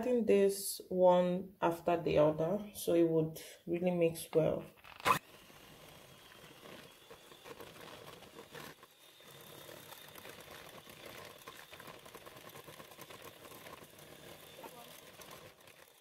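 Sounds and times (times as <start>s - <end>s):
electric hand mixer running: 5.0s - 16.0s.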